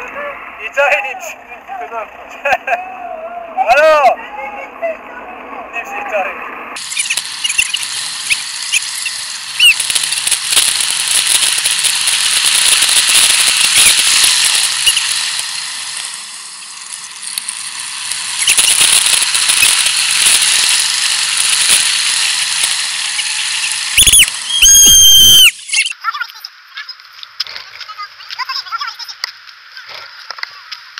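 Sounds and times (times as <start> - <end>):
bicycle rushing and rattling: 6.4 - 25.9
short high squeals: 6.8 - 9.9, 13.6 - 15.2, 22.5 - 25.9.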